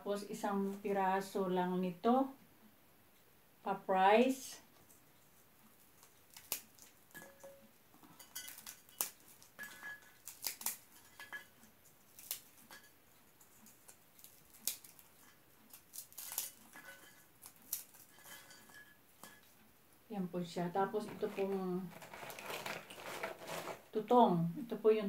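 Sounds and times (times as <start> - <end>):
puffed rice bar crackling: 5.8 - 7.2, 8.2 - 18.8, 21.0 - 24.0.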